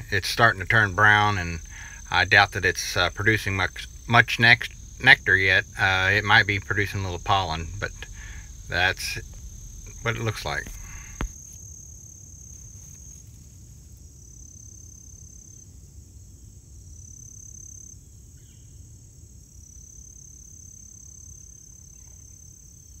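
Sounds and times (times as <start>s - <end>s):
low rumble: 0.0s - 11.4s
high insect buzz: 0.0s - 23.0s
insects trilling: 0.0s - 23.0s.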